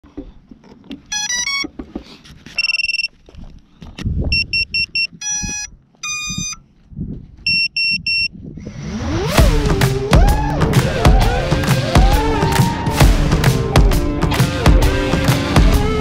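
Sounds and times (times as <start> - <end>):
drone electronic beeps: 4.3 - 6.6.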